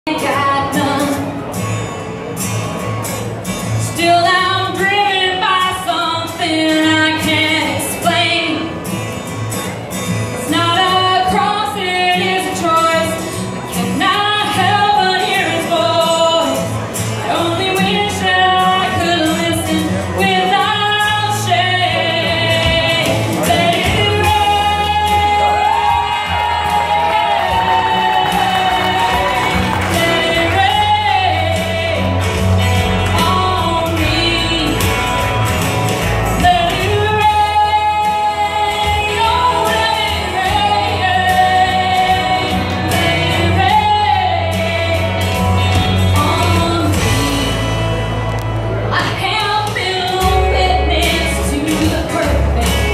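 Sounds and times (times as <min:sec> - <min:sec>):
woman singing into microphone: 0:00.1 - 0:01.7, 0:03.7 - 0:09.0, 0:10.4 - 0:35.5, 0:36.3 - 0:48.0, 0:48.8 - 0:52.9
instrumental backing with steady beat: 0:17.8 - 0:52.9.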